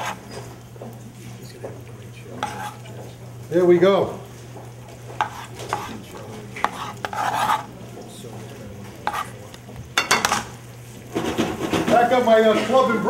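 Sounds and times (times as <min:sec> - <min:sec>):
knife on plastic cutting board: 0:00.0 - 0:00.2, 0:02.4 - 0:02.9, 0:05.2 - 0:06.0, 0:06.6 - 0:07.7, 0:09.0 - 0:09.3
knife scraping board: 0:00.0 - 0:00.4, 0:02.4 - 0:02.9, 0:05.2 - 0:06.0, 0:06.6 - 0:07.7, 0:09.0 - 0:09.3.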